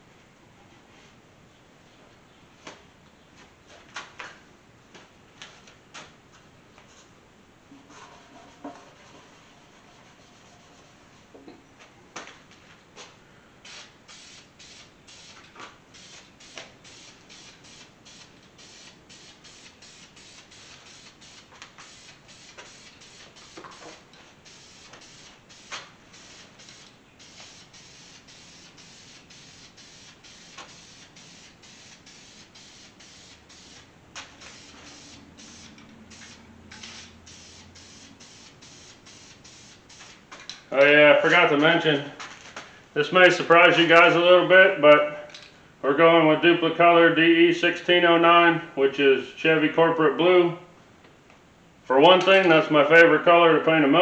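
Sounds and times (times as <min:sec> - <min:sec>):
aerosol spray can hissing: 0:13.6 - 0:40.2.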